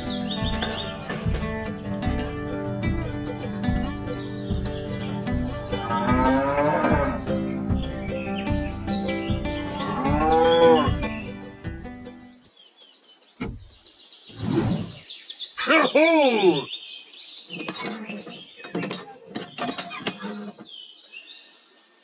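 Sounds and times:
birds chirping: 0:00.0 - 0:22.0
drawn-out rising and falling call: 0:02.5 - 0:11.3.

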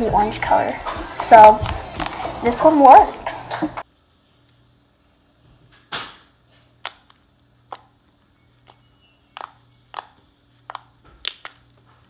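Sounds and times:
slime popping: 0:08.6 - 0:11.8.

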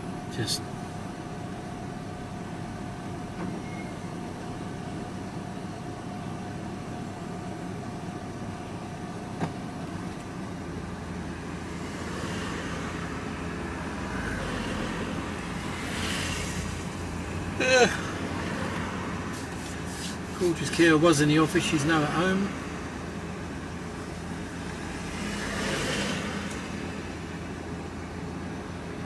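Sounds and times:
faint steady whine: 0:00.0 - 0:11.8
engine and road rumble: 0:00.0 - 0:29.0
motorcycle passing alongside: 0:11.8 - 0:17.1, 0:24.7 - 0:27.1.

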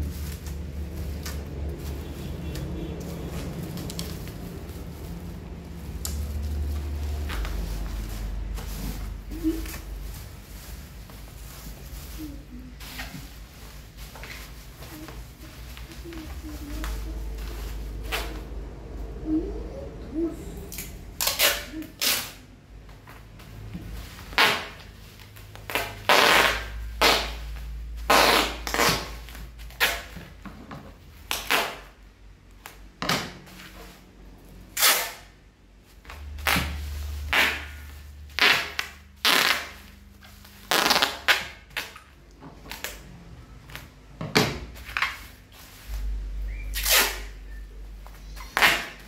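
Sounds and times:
packing tape ripping off roll: 0:00.0 - 0:14.8, 0:20.7 - 0:22.5, 0:24.2 - 0:30.3, 0:31.2 - 0:32.0, 0:34.7 - 0:35.3, 0:36.2 - 0:43.1, 0:46.7 - 0:47.4, 0:48.4 - 0:49.0
bubble wrap crinkling: 0:00.0 - 0:30.4, 0:33.5 - 0:44.0, 0:44.6 - 0:49.0.

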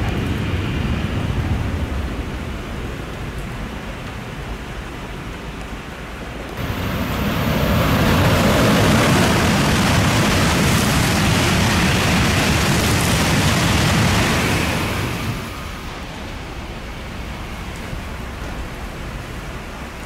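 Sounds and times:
steady rain: 0:00.0 - 0:20.0
train rushing past: 0:06.6 - 0:20.0.

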